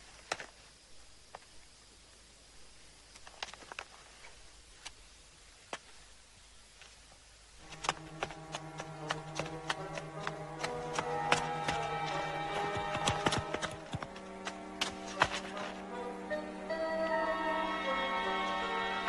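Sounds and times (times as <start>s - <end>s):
hooves clip-clopping: 7.6s - 16.0s
film score music with drone: 7.6s - 19.0s.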